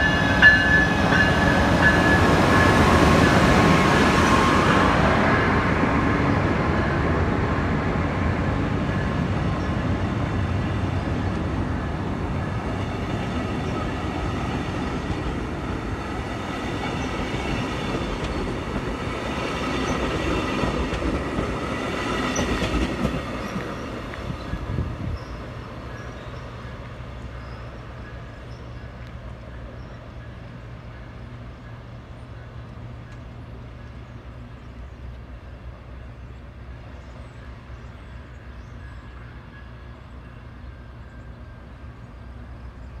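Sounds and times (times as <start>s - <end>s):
passenger train rolling past: 0.0s - 43.0s.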